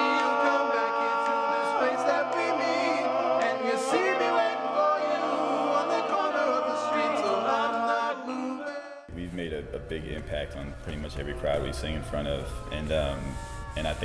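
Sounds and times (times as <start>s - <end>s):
male a cappella group singing: 0.0s - 9.1s.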